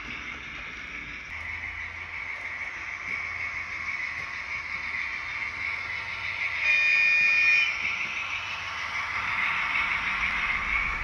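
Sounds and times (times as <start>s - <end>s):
model locomotive horn: 6.6s - 7.8s.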